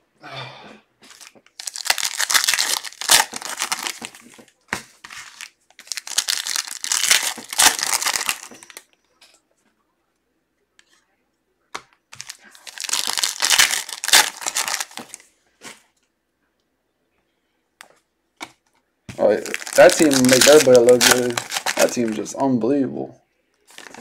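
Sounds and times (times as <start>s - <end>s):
foil wrapper crinkling and tearing: 1.1s - 4.4s, 5.1s - 8.8s, 12.2s - 15.2s, 19.2s - 22.3s, 23.7s - 24.0s.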